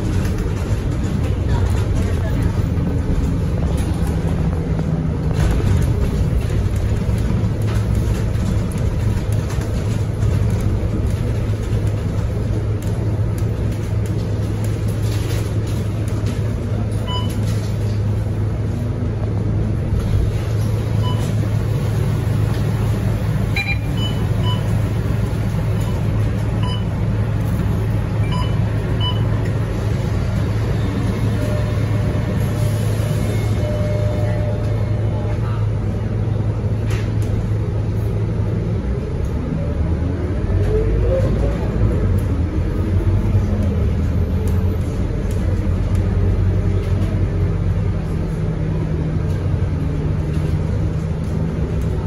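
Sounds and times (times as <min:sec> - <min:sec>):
bus diesel engine humming: 0:00.0 - 0:52.0
road noise: 0:00.0 - 0:52.0
short beeps: 0:23.5 - 0:24.7, 0:26.6 - 0:26.9, 0:28.2 - 0:29.3, 0:31.4 - 0:32.4, 0:33.0 - 0:35.3.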